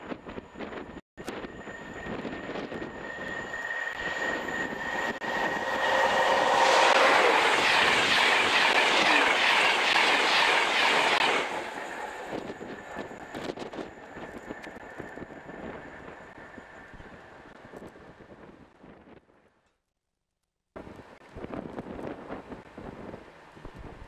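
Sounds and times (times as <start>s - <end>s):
train passing at high speed: 1.4s - 18.2s.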